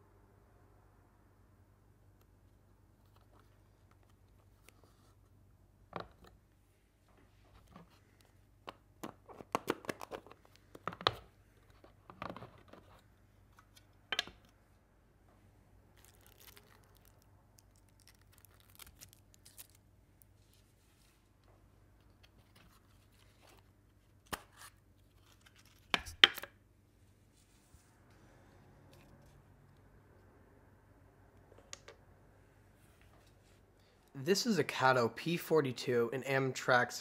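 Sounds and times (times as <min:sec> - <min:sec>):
bubble wrap crinkling: 0:15.8 - 0:21.4.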